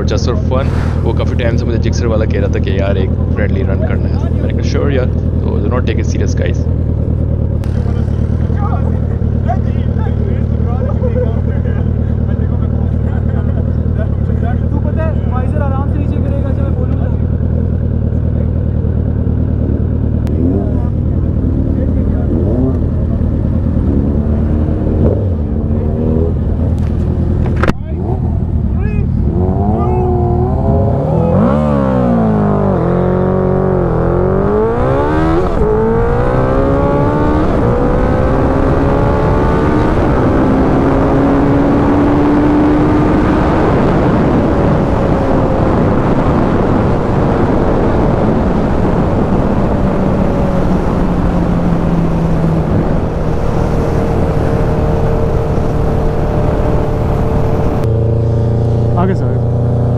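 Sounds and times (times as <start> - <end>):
wind rush on microphone: 0.0 - 2.4, 33.8 - 57.9
motorcycle engine accelerating: 0.0 - 59.9.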